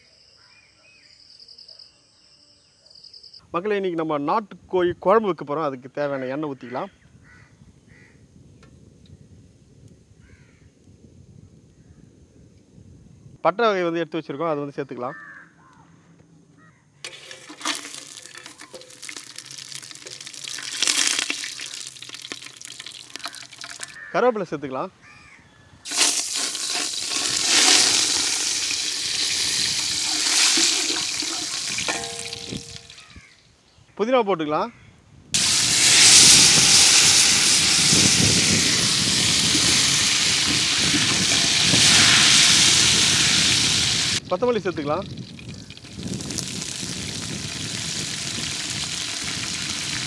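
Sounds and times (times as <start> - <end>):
spices sizzling in hot oil: 17.1 - 24.0, 25.9 - 33.2, 35.4 - 50.0.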